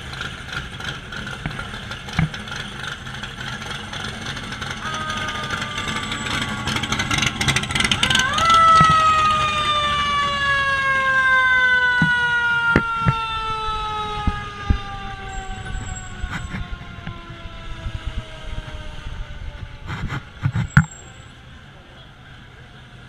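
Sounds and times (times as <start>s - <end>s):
fire engine siren winding down: 3.3s - 20.4s.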